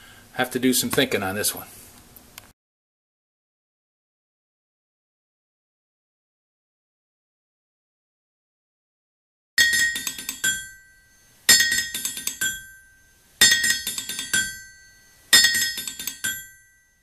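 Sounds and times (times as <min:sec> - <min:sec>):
clinking metal strikes: 0:09.6 - 0:17.0.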